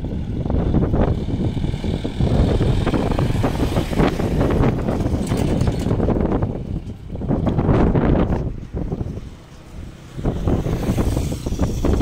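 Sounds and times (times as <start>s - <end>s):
vehicle driving past: 0.0s - 6.4s, 9.0s - 12.0s
wind buffeting microphone: 0.0s - 12.0s.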